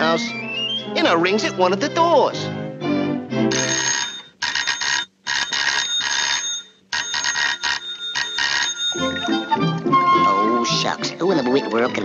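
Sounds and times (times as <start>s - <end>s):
electric doorbell ringing: 3.5s - 9.4s.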